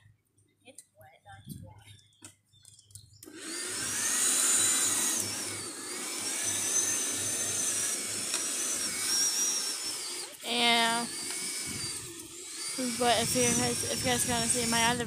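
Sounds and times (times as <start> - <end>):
lawn mower running: 3.3 - 15.0.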